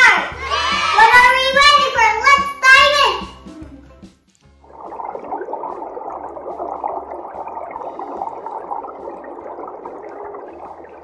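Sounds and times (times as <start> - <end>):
underwater bubbling and gurgling: 4.6 - 11.0.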